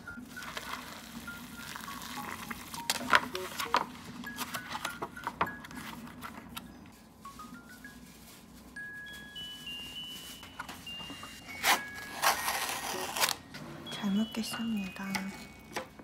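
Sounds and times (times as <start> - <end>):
soft background music: 0.0 - 16.0
foil lid crinkling: 0.1 - 13.5.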